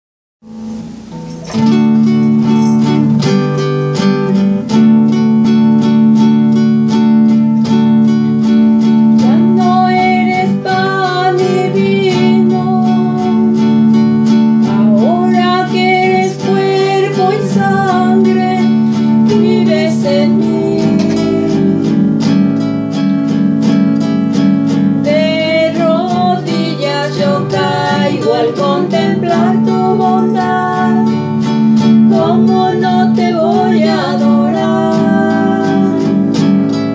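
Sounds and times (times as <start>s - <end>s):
acoustic guitar strumming: 0.4s - 36.9s
person singing: 9.0s - 22.5s, 25.0s - 36.9s.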